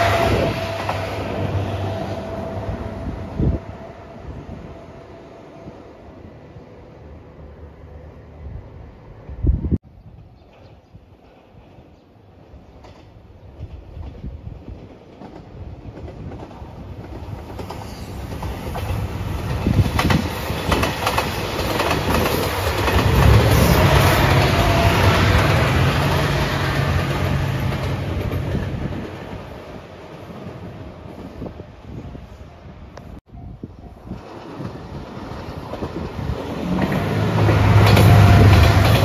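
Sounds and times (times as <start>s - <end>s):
diesel train engine drone: 0.0s - 9.7s, 16.8s - 33.2s, 34.0s - 39.0s
wheels clacking over rail joints: 12.8s - 29.4s, 34.2s - 39.0s.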